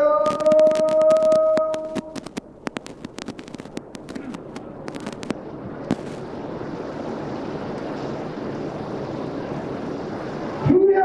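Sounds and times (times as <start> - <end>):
firecrackers popping: 0.2 - 6.5.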